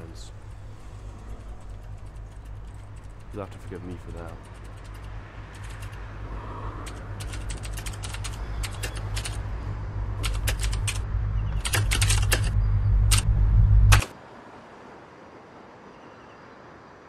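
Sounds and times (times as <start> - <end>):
low steady drone: 0.0 - 14.1
rapid sharp clicking: 0.3 - 6.1, 6.8 - 9.5, 10.2 - 13.3, 13.9 - 14.1.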